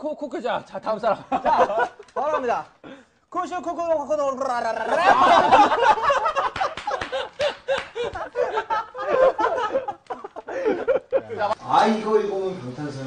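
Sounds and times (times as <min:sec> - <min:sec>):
young men laughing: 0:01.0 - 0:03.2, 0:04.7 - 0:11.6.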